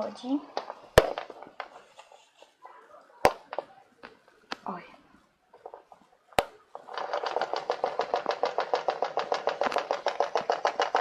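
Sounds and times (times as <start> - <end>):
toy mechanism clicking on wood: 5.6 - 11.0.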